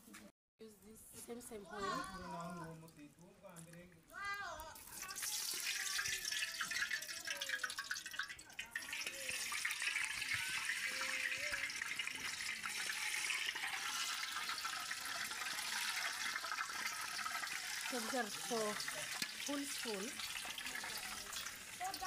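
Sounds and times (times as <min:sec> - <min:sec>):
food sizzling in hot oil: 0:04.8 - 0:22.0.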